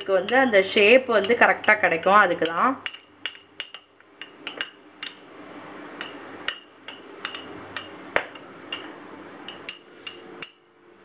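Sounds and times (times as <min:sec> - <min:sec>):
metal spoon tapping ceramic bowl: 0:00.0 - 0:05.2, 0:06.0 - 0:08.9.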